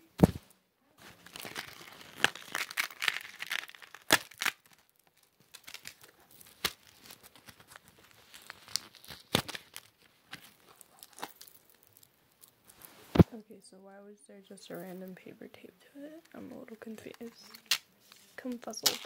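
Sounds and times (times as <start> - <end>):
crinkling and clicks of handling: 1.0 - 13.4, 16.0 - 19.0
paper tape peeling and tearing: 1.1 - 12.9, 17.0 - 19.0.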